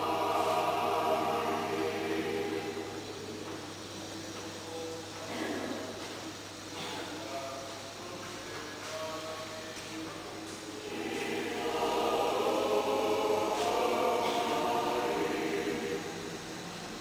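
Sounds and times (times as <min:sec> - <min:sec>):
choir singing: 0:00.0 - 0:03.5, 0:10.8 - 0:17.0.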